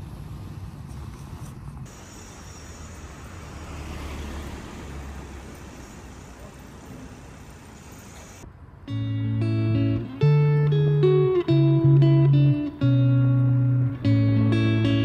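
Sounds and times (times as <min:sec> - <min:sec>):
city street traffic: 0:00.0 - 0:15.0
vehicle passing by: 0:01.9 - 0:12.1.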